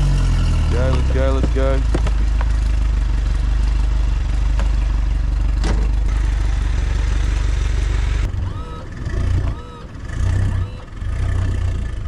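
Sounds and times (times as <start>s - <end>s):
outboard motor idling: 0.6s - 12.0s.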